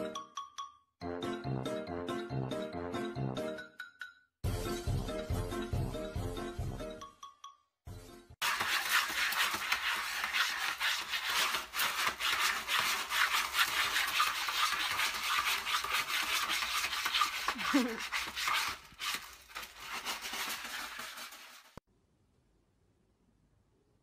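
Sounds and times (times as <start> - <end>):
cat scratching in litter tray: 8.4 - 21.8.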